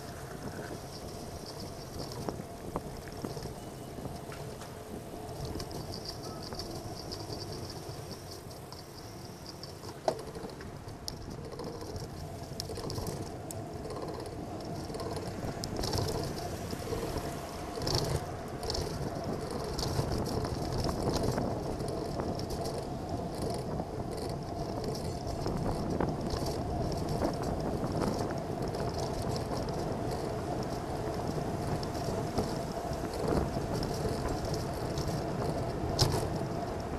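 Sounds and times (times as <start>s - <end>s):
bicycle tyre noise: 0.0s - 36.9s
small rattles: 0.0s - 36.9s.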